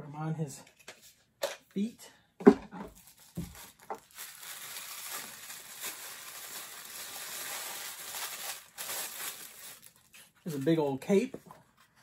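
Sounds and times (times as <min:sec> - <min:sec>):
packaging crinkling: 0:02.9 - 0:10.8.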